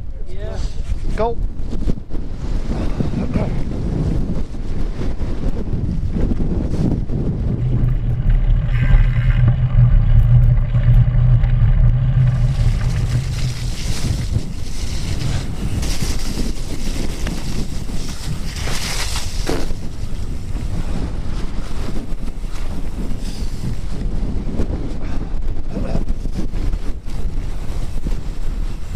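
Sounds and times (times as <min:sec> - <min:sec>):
wind buffeting microphone: 0:00.0 - 0:28.9
bike tyres rumbling: 0:02.4 - 0:25.4.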